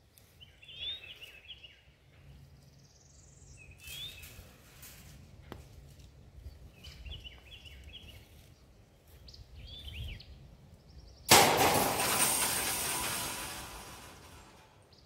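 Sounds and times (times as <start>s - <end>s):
bird chirps: 0.4s - 1.9s, 2.8s - 4.4s
metal panel crashing on steel deck: 11.3s - 14.8s.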